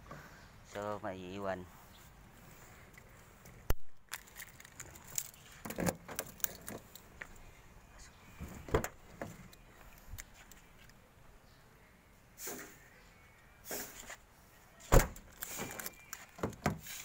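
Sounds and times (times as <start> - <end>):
keys jangling: 4.2 - 7.1
car door opening: 8.4 - 9.5, 14.9 - 16.8.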